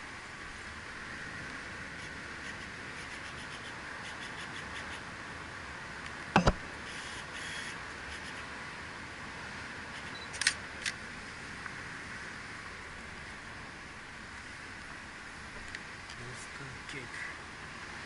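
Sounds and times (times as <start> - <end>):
steady background hiss: 0.0 - 18.0
camera shutter clicks: 10.0 - 11.0.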